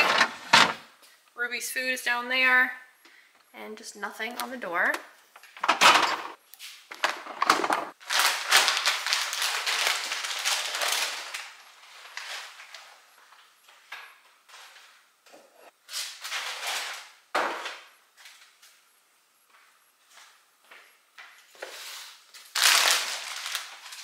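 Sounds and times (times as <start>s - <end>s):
plastic packaging rustling: 7.0s - 13.0s, 22.0s - 24.0s
items set down on shelves: 16.1s - 18.4s.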